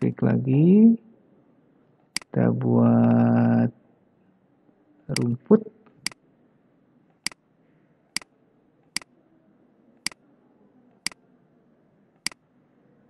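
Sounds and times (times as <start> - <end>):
computer mouse button clicking: 5.1 - 5.3.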